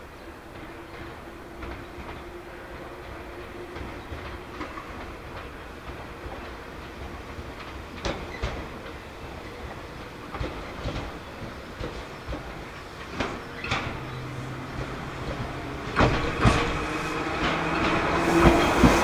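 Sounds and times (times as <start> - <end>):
train rumble: 0.0 - 19.0
train wheels clattering over points: 10.0 - 19.0.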